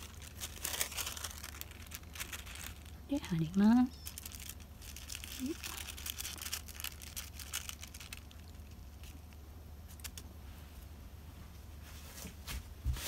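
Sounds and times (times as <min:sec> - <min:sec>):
tissue paper rustling: 0:00.0 - 0:09.3
low steady hum: 0:00.0 - 0:13.0.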